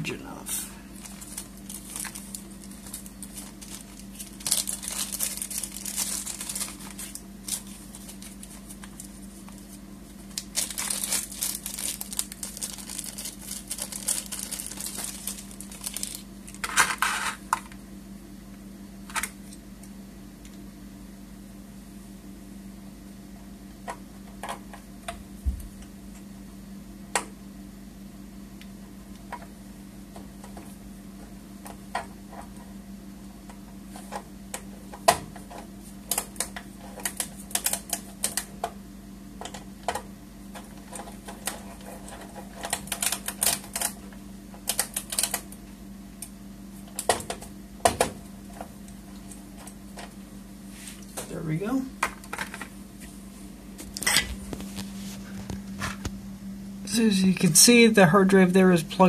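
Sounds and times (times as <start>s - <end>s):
steady low hum: 0.0s - 59.0s
rustling and crinkling: 0.9s - 17.4s, 40.5s - 45.4s, 53.8s - 56.2s.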